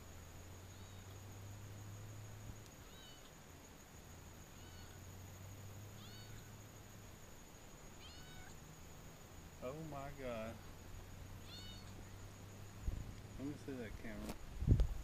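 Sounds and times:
kitten meowing: 2.8 - 3.3, 4.5 - 5.0, 6.0 - 6.5, 8.0 - 8.6, 11.4 - 12.0.

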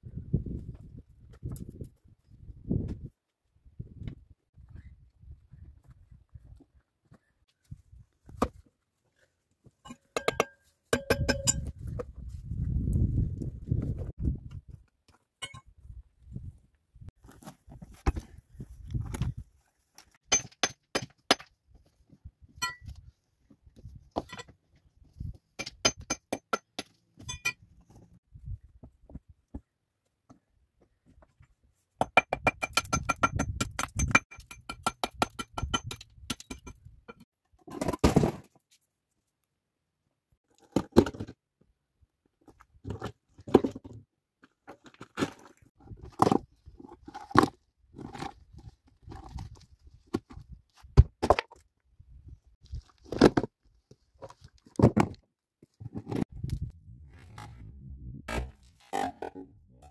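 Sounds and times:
steel tool clinking against rock: 9.8 - 11.7, 15.4 - 15.7, 22.6 - 22.9, 25.6 - 27.6, 32.5 - 37.2
stones knocking and scraping: 17.3 - 19.4, 42.4 - 51.7, 52.6 - 56.7
thuds of moved stones: 37.7 - 38.6, 54.2 - 55.2.

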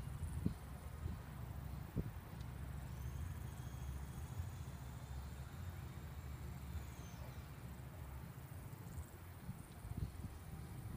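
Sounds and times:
low steady rumble: 0.0 - 10.9
insects trilling: 2.6 - 9.4.

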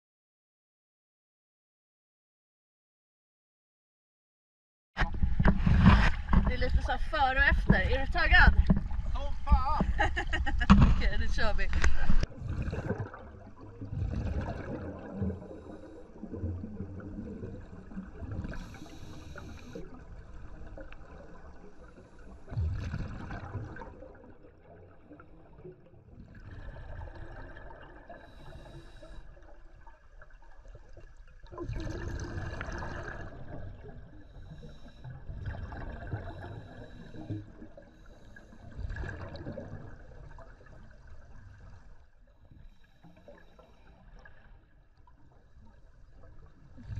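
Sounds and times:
exhaled bubbles gurgling: 5.0 - 46.9
regulator inhale hiss: 18.5 - 19.8, 28.2 - 29.4.

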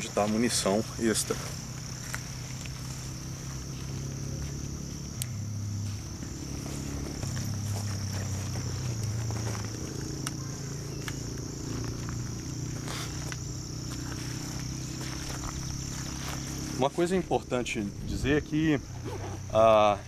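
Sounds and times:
insects chirring: 0.0 - 20.0
faint clicks: 5.2 - 5.4.

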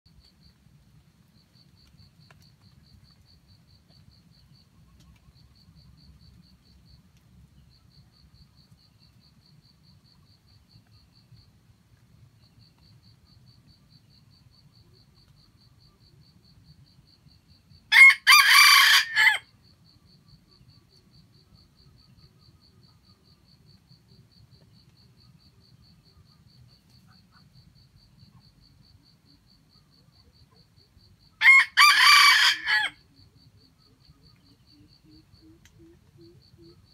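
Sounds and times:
rooster crowing: 17.9 - 19.5, 31.4 - 33.0.

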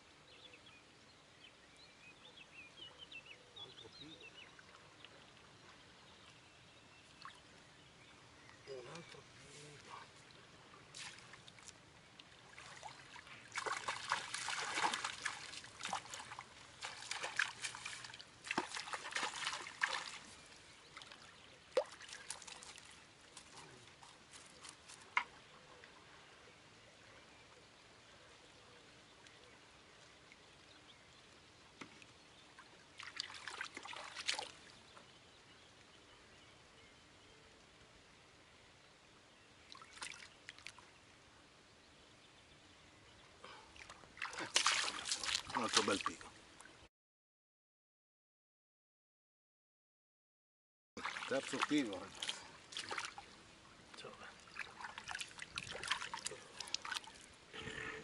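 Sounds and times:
fish splashing in water: 12.4 - 20.3, 44.2 - 46.1, 51.0 - 53.3, 54.5 - 57.2.

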